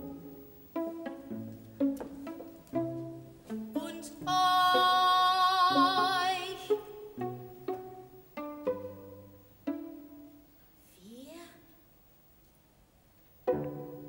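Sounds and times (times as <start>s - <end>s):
pizzicato string chords: 0.0s - 10.5s, 13.4s - 14.0s.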